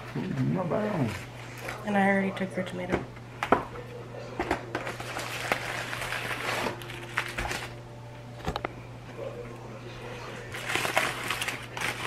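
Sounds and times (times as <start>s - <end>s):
foil wrapper crinkling: 4.7s - 7.8s, 10.4s - 12.0s.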